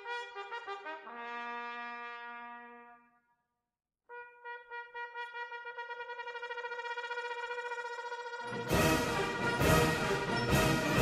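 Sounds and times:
background music: 0:04.1 - 0:11.0
music with sustained notes: 0:06.7 - 0:11.0.

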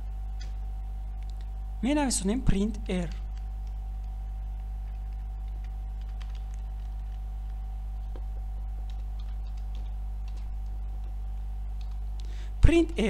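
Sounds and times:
low electrical hum: 0:00.0 - 0:13.0
keyboard keystrokes: 0:04.8 - 0:07.6, 0:08.8 - 0:11.1.

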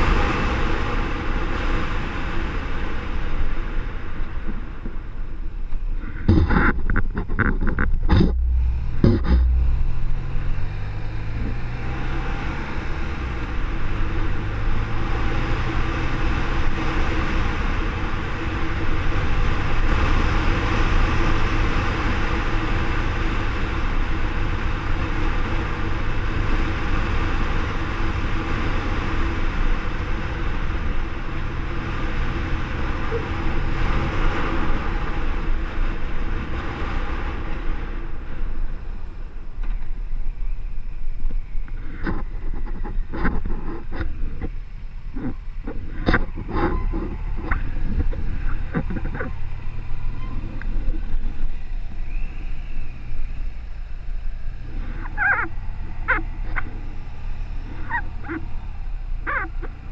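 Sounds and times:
road noise: 0:00.0 - 0:59.9
wind rush on microphone: 0:00.0 - 0:59.9
motorcycle engine: 0:06.0 - 0:36.5.

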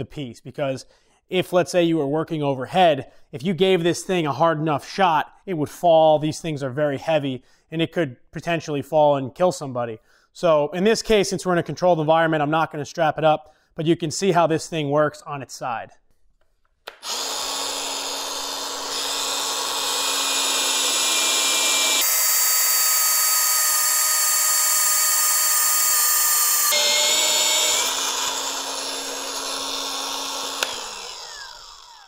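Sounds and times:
drill motor whining through steel: 0:16.9 - 0:32.0.

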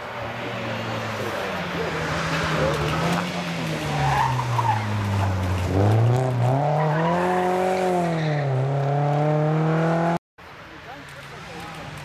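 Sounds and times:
tyres skidding: 0:00.0 - 0:10.2
rally car engine revving: 0:00.7 - 0:10.2.

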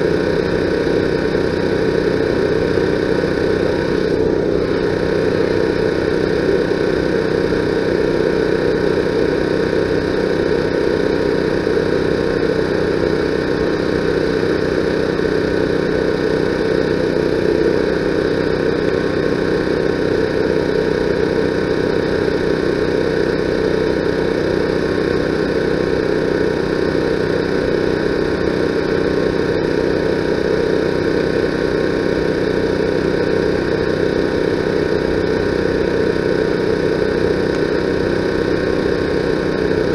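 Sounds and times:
steady mechanical drone: 0:00.0 - 0:39.9.

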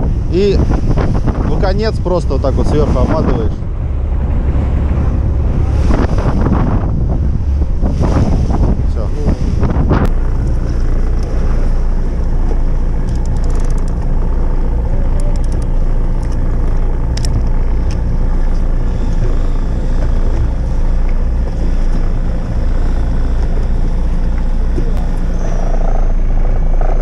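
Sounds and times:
boat engine humming: 0:00.0 - 0:27.0
light clicks: 0:13.0 - 0:14.1.

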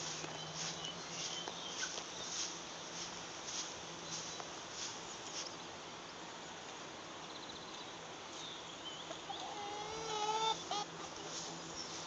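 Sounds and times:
hen calling: 0:09.1 - 0:11.1.

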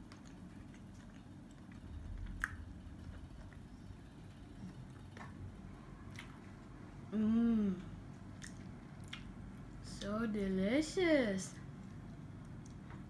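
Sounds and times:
faint chewing: 0:00.0 - 0:06.8, 0:07.8 - 0:09.8, 0:11.5 - 0:13.0.

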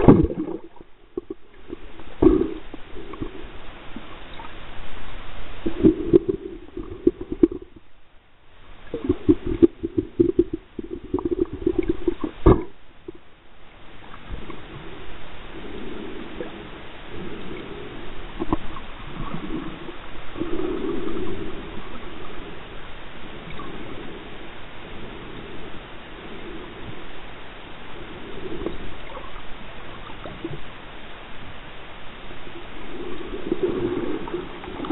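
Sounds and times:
rough underwater pulses: 0:00.0 - 0:04.5, 0:05.6 - 0:07.9, 0:08.9 - 0:13.2
muffled underwater water burbling: 0:00.0 - 0:34.9
underwater swishing: 0:00.0 - 0:34.9.

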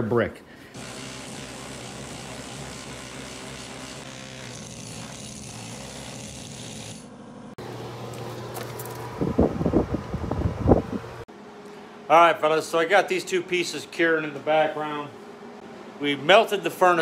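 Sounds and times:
power chisel rattling: 0:00.8 - 0:07.1.

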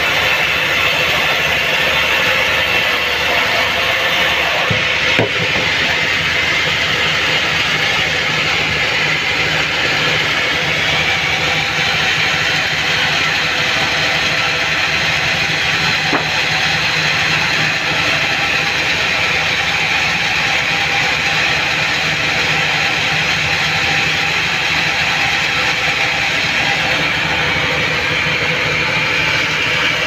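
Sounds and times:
band saw cutting log: 0:00.0 - 0:30.0.

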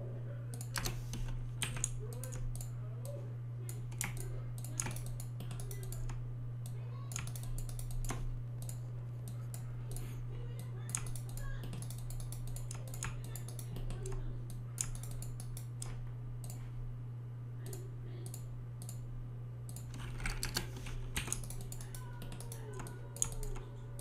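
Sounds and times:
steady low hum: 0:00.0 - 0:24.0
keyboard and mouse clicks: 0:00.6 - 0:02.7, 0:03.7 - 0:10.1, 0:10.8 - 0:16.6, 0:19.7 - 0:23.7.

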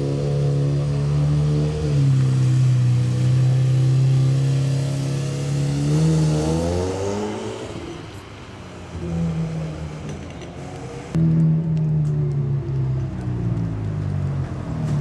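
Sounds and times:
sports car engine pulling away: 0:00.0 - 0:08.0.

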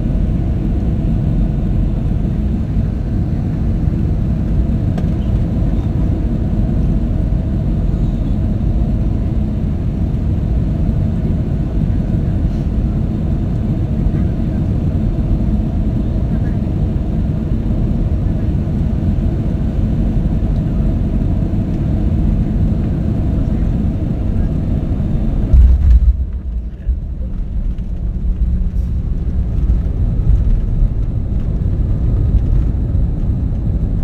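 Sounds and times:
airliner cabin rumble: 0:00.0 - 0:34.0
aircraft touchdown thud: 0:25.4 - 0:26.7
landing roll rumble: 0:25.5 - 0:32.8.

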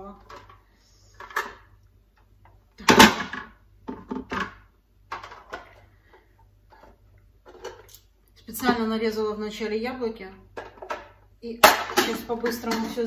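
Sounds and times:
kitchen utensils clattering: 0:10.6 - 0:13.0.

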